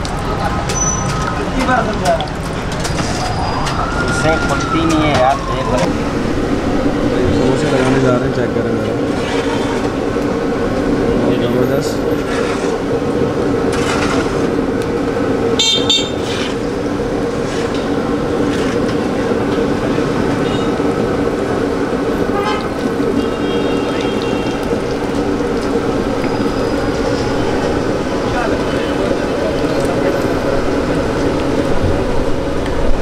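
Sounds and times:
food deep-frying in oil: 0.0s - 6.1s, 11.8s - 32.7s
street traffic hum: 0.0s - 33.0s
car horns tooting: 15.6s - 16.4s, 20.4s - 20.9s, 22.2s - 24.7s.

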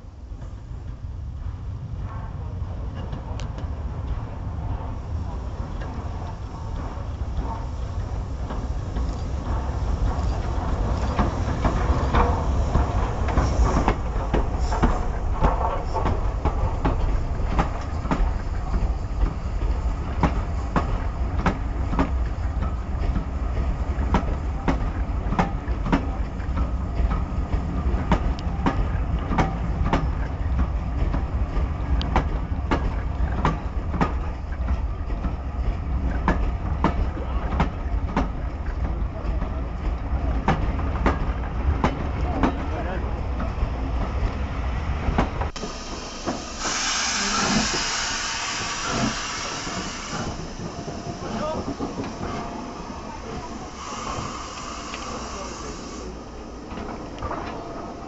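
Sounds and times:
steam train rumbling past: 0.0s - 58.0s
wheels clicking over rail joints: 5.6s - 44.4s.

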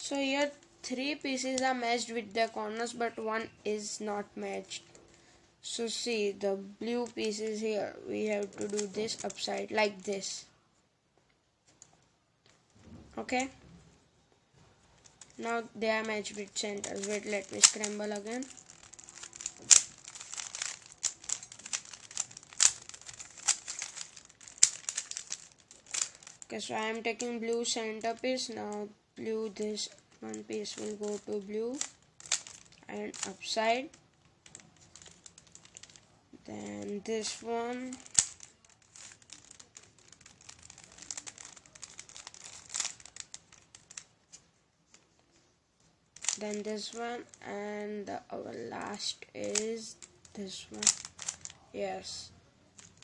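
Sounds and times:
puzzle cube plastic clicks: 1.2s - 2.9s, 6.9s - 10.3s, 15.0s - 44.4s, 46.2s - 47.4s, 48.9s - 53.0s.

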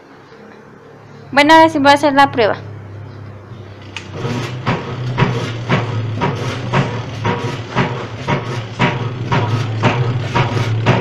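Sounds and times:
washing machine motor humming: 1.6s - 11.0s
washing machine drive knocking: 4.0s - 11.0s.

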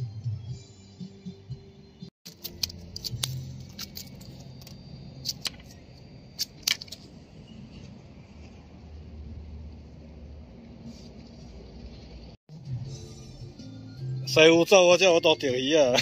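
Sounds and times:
background music: 0.0s - 5.6s, 12.5s - 16.0s.

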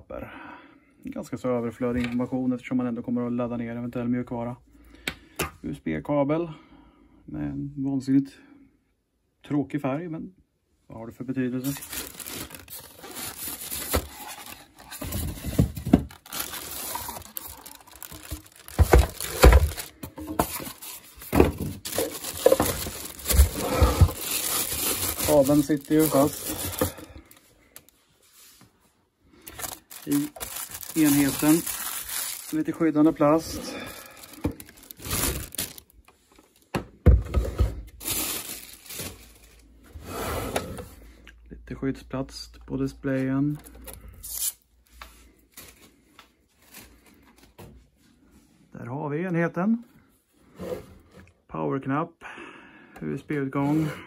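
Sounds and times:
plastic wrapping crinkling: 11.6s - 28.0s, 29.4s - 36.6s, 38.0s - 39.7s.

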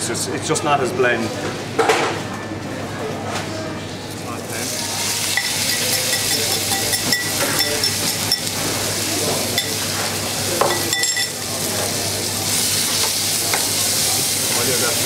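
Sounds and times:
pork sizzling in a frying pan: 4.4s - 15.0s.

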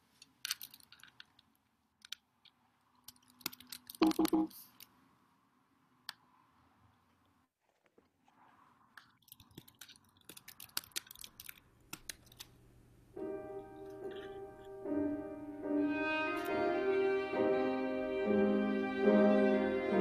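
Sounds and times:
faint clicks and crackles: 0.0s - 5.0s, 6.9s - 12.6s
piano: 13.2s - 20.0s
violin sustained notes: 15.6s - 20.0s.

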